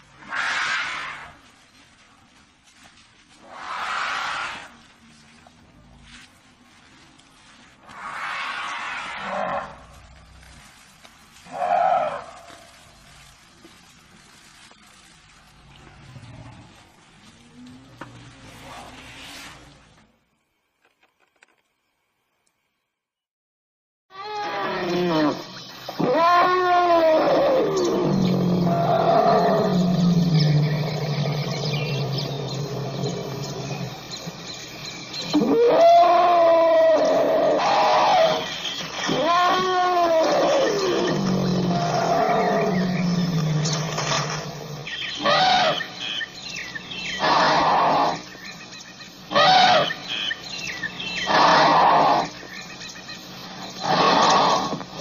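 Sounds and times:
elephant calling: 24.1 - 48.6, 49.2 - 55.0.

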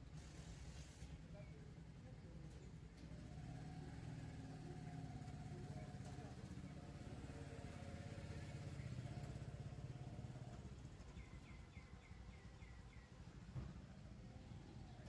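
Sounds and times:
distant vehicle rumble: 0.0 - 15.0
bird chirping: 8.4 - 13.5.

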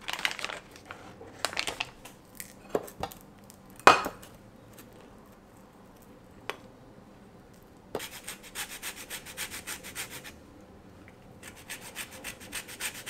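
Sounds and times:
foil wrapper crinkling: 0.0 - 3.8.

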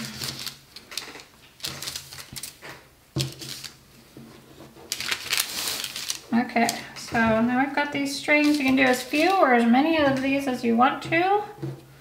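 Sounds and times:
string and paper rustling: 8.0 - 9.5.

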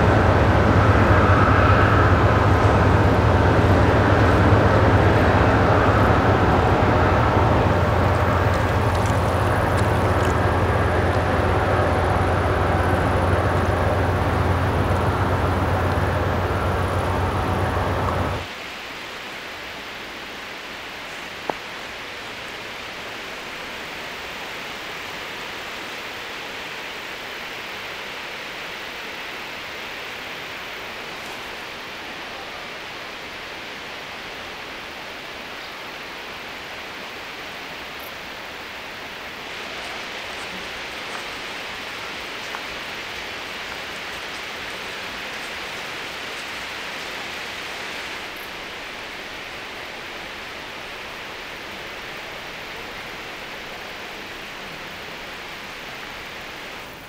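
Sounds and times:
outdoor rustling hiss: 0.0 - 57.0.

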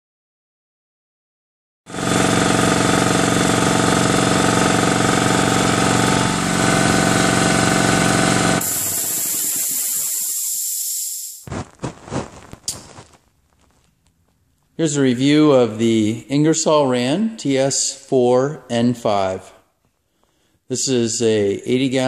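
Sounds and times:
air compressor running: 1.9 - 11.4
hiss of released air: 8.6 - 11.5.

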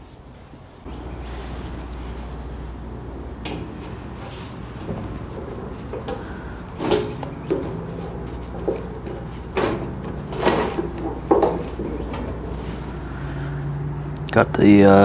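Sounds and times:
rubber grommet knocking and rubbing: 2.2 - 13.1.

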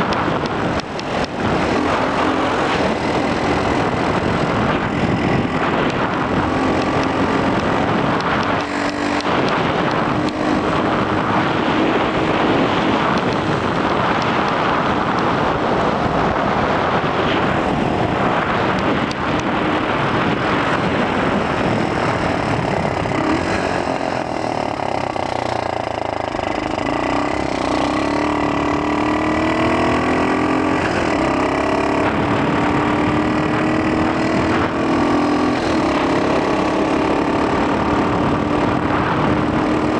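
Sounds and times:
wind noise on microphone: 0.0 - 39.9
pocket bike engine running: 19.4 - 39.9.

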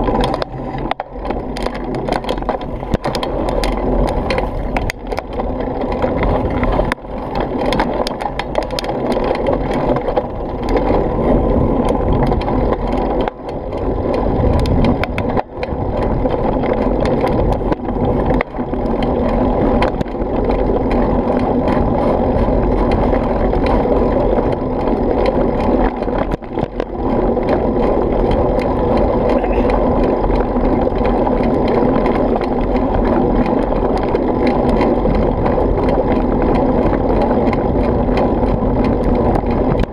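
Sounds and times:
bike rattling over bumps: 0.0 - 39.9
bike tyre noise on dirt: 0.0 - 39.9
wind on microphone: 0.0 - 39.9.

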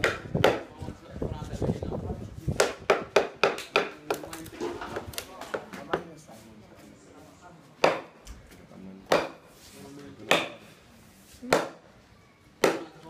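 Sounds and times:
chisel struck with wooden stick: 2.6 - 4.3, 7.8 - 8.2, 9.1 - 9.4, 10.3 - 10.6, 12.6 - 12.9.

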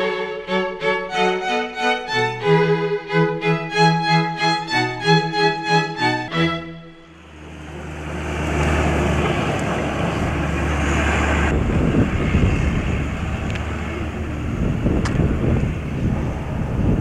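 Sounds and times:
wind buffeting microphone: 8.4 - 17.0.

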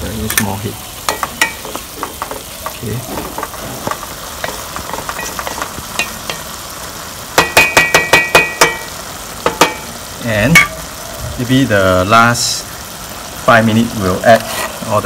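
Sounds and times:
low sizzle: 0.0 - 15.0
spatula knocking on ringing pot: 1.1 - 6.6, 7.4 - 9.9
spatula scraping rice in pot: 14.3 - 14.9.

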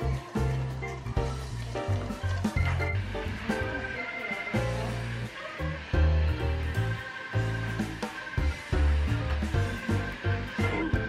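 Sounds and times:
background music with bass line: 0.0 - 11.0.

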